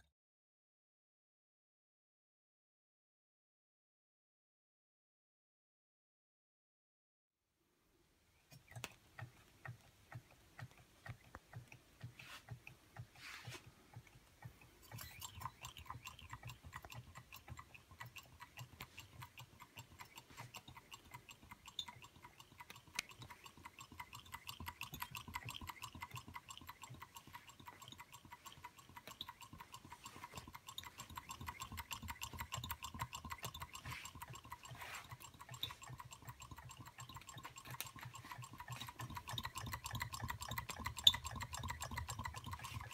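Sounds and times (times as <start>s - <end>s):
engines ticking clatter: 14.0s - 42.9s.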